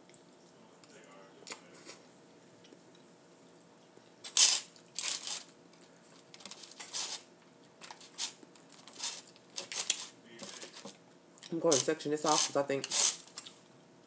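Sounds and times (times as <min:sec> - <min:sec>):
crisp food crackling: 0:04.2 - 0:13.8.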